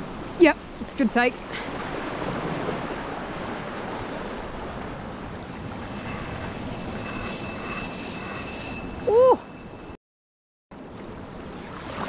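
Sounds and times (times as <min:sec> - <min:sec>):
sea waves on rocky shore: 0:00.0 - 0:09.6
faint high whine: 0:05.8 - 0:10.0.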